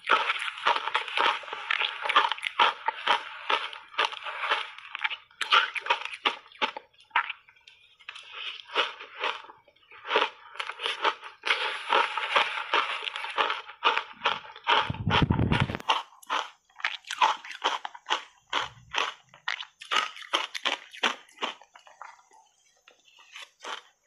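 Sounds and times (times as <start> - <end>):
crunching shaved ice: 0.0 - 24.0.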